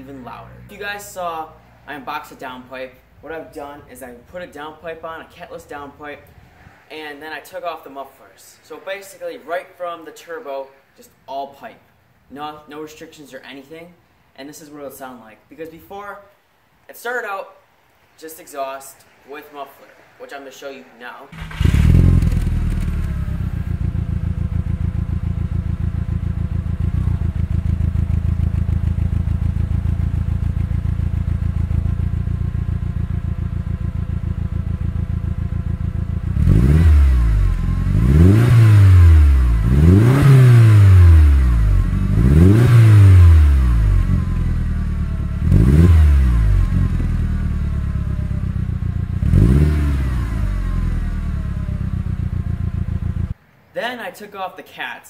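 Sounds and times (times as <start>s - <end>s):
engine rev blips: 21.4s - 32.0s, 34.1s - 53.3s
car engine idling: 21.4s - 40.0s, 40.7s - 49.2s, 50.3s - 53.4s.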